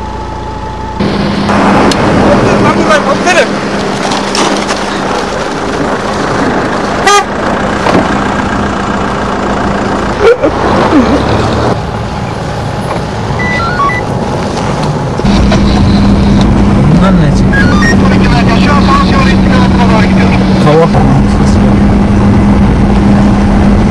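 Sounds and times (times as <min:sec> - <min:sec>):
vehicle engines running: 0:00.0 - 0:23.9
steady hum: 0:15.2 - 0:23.9.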